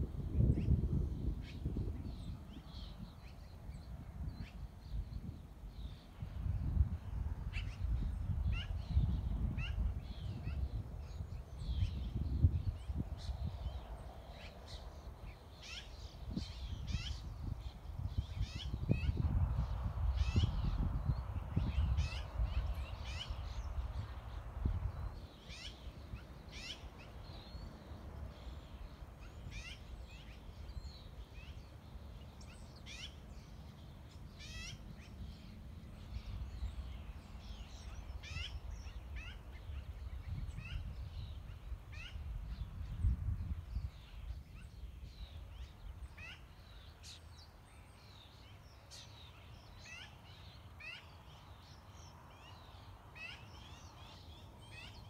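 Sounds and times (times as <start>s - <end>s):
wind buffeting microphone: 0.0s - 31.6s, 34.8s - 46.2s
birds chirping: 0.4s - 55.0s.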